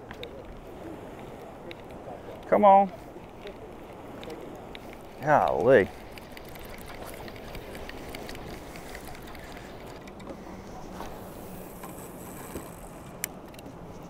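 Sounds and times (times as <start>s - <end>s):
surf: 0.0s - 14.0s
wind: 0.0s - 14.0s
fishing reel ticking: 3.4s - 10.4s, 11.5s - 13.3s.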